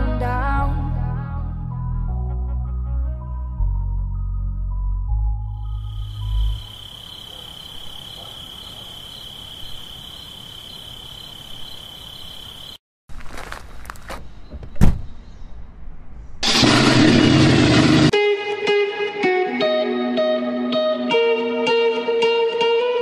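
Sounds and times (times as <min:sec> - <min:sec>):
loud rushing noise: 0:16.4 - 0:18.2
steady high whine: 0:16.4 - 0:18.2.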